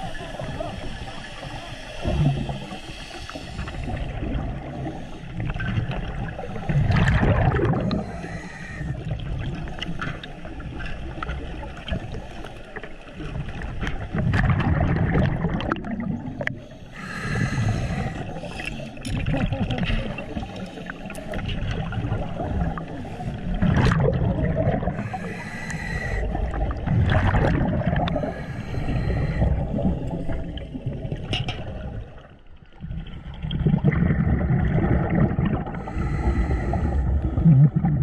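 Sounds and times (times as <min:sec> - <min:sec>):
water hiss: 0:00.0 - 0:05.5, 0:07.8 - 0:09.0, 0:16.6 - 0:19.0, 0:24.9 - 0:26.4, 0:28.1 - 0:30.4
exhaled air bubbling underwater: 0:00.0 - 0:38.0.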